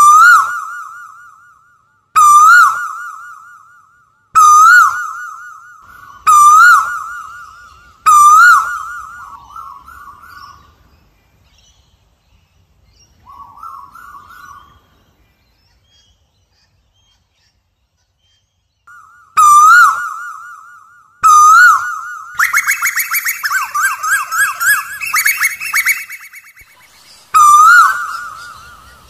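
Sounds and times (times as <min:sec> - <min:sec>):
bird calling: 0:04.4 - 0:10.6, 0:18.9 - 0:29.0.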